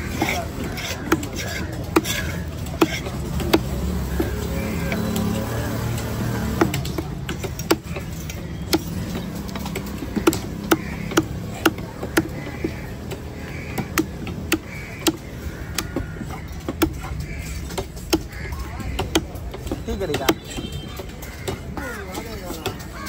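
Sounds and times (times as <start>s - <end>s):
cleaver chopping on wooden block: 0.2s - 5.0s, 8.7s - 21.6s.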